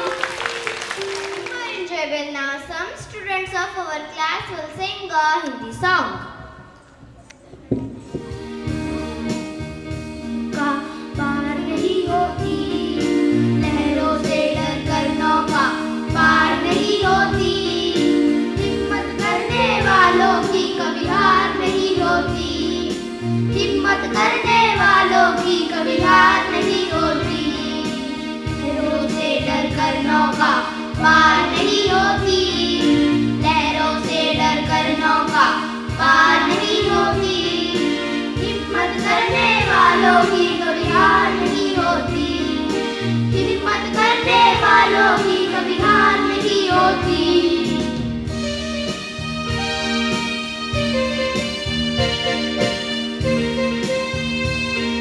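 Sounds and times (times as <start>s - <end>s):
backing track with steady beat: 6.3s - 55.0s
boys singing into microphones: 23.6s - 42.8s, 43.4s - 47.9s.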